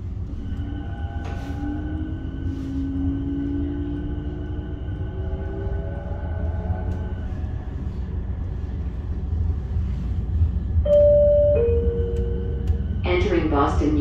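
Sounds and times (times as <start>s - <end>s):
light-rail car rumbling: 0.0s - 14.0s
two-note descending chime: 10.9s - 12.7s.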